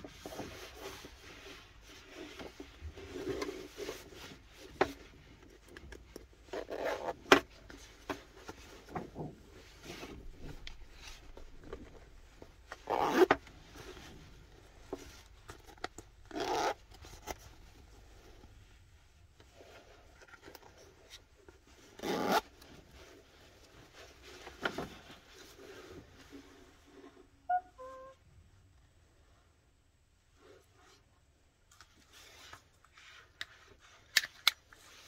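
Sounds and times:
zipper being pulled: 12.8s - 13.3s, 16.3s - 16.8s, 21.9s - 22.5s.

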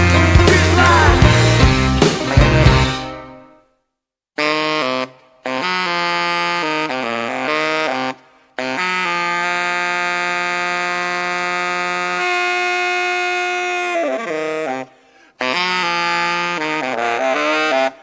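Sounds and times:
instrumental background music: 0.0s - 3.6s.

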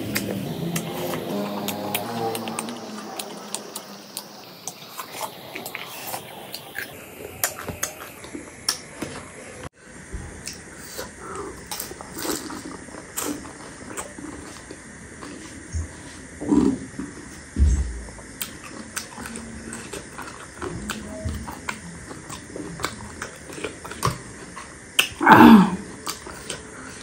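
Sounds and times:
wet chewing: 0.0s - 8.8s, 18.1s - 25.2s, 25.8s - 27.0s
food crunching: 0.0s - 9.1s, 10.4s - 17.3s, 18.0s - 25.2s, 25.8s - 27.0s.

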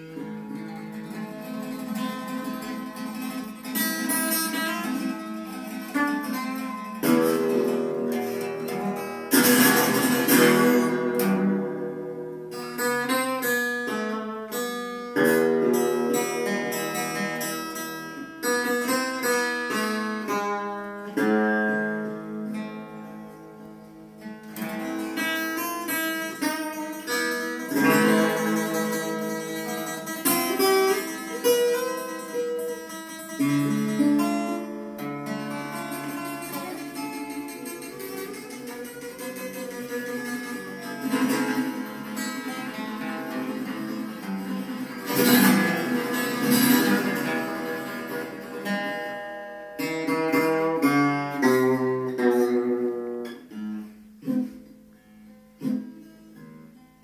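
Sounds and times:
acoustic guitar: 0.0s - 57.0s
plucked string instrument: 0.0s - 57.0s.

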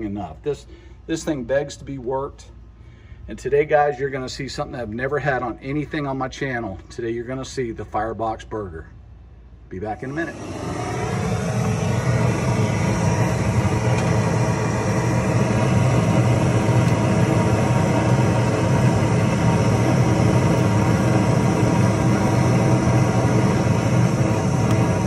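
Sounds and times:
propane torch burning: 9.8s - 25.0s.

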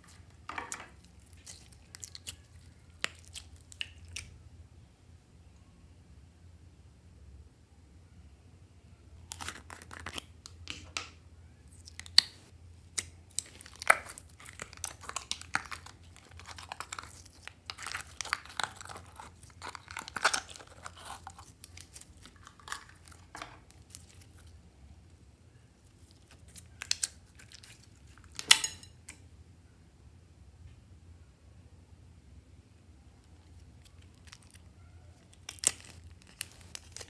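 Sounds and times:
slime squelching and popping: 0.0s - 4.4s, 11.8s - 24.5s, 35.3s - 37.0s.

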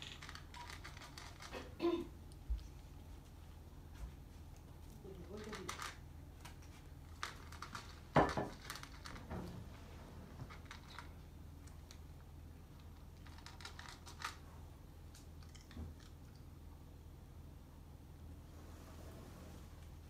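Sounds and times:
cat crunching dry food: 0.0s - 3.2s, 4.5s - 9.3s, 10.5s - 16.4s
faint low hum: 0.0s - 20.0s.

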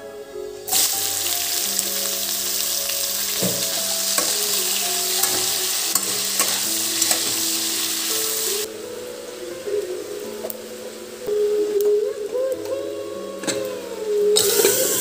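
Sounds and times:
vegetables sizzling in hot oil: 0.7s - 10.6s, 14.4s - 15.0s.

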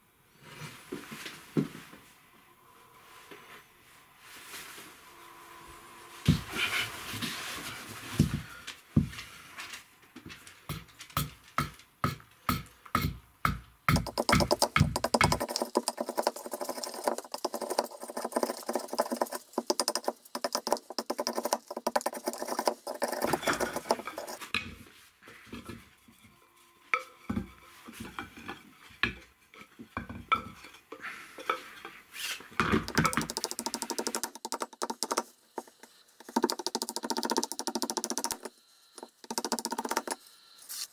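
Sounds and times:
hatchet chopping wood: 10.7s - 18.8s.

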